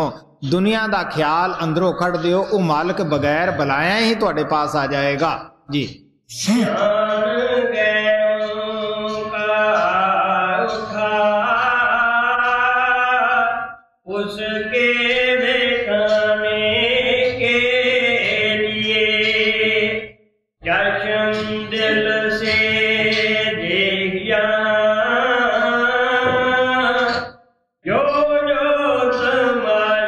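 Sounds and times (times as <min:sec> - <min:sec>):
person chanting a hymn: 0:06.4 - 0:27.2.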